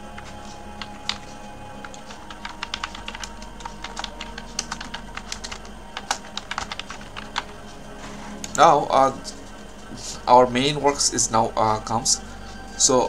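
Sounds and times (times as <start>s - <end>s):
computer keyboard typing: 0.2s - 7.6s.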